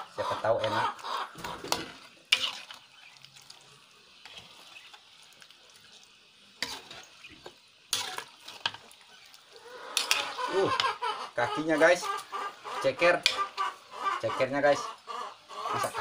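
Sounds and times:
faint simmering hiss: 0.0s - 16.0s
metal ladle stirring stew: 0.6s - 11.0s, 11.6s - 13.9s.

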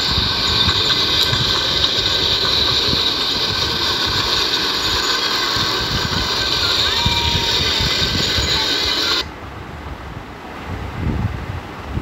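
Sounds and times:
train hiss: 0.0s - 9.3s
small train rumbling on track: 0.0s - 10.6s.

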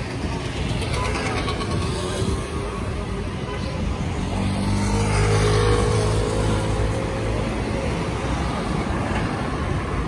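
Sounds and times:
car passing: 4.0s - 10.0s.

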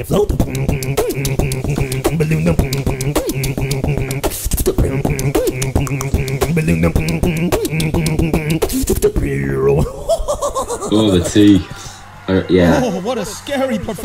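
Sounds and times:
beatboxing kick and snare clicks: 0.0s - 9.3s
humming bass line: 0.0s - 9.8s
vocal scratching imitations: 0.0s - 10.1s.

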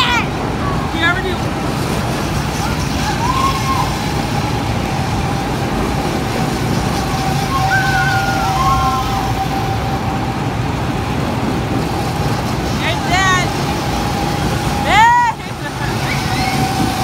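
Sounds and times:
go-kart engines droning: 0.0s - 17.0s
brief rising and falling sounds: 2.6s - 10.6s.

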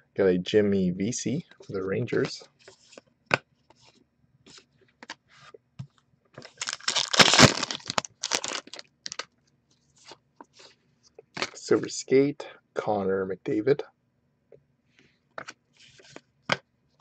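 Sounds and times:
cards rustling and clicking: 6.4s - 9.3s
foil pack tearing: 6.5s - 9.2s.

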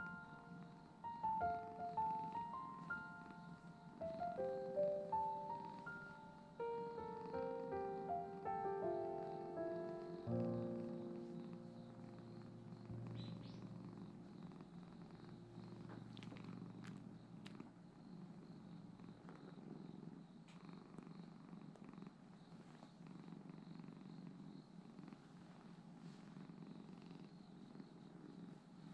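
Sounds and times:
cat purring: 0.0s - 28.9s
faint clicks: 15.2s - 17.8s.

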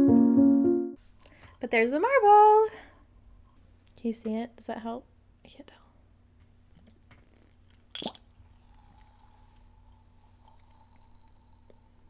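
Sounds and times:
drinking mouth sounds: 6.8s - 12.0s.

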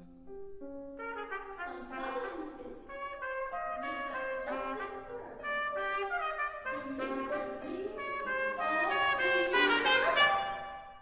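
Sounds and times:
solo trumpet playing: 1.0s - 11.0s.

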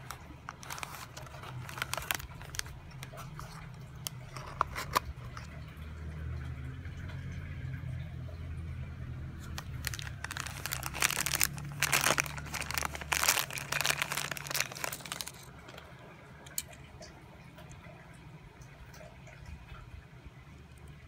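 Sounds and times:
plastic bag crinkling: 0.0s - 5.6s, 9.4s - 16.7s.

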